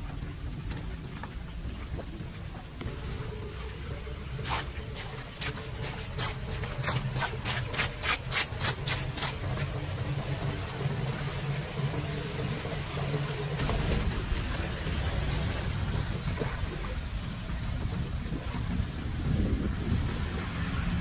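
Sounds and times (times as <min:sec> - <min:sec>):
water washing: 0:00.0 - 0:21.0
rake scraping metal grate: 0:04.4 - 0:09.8.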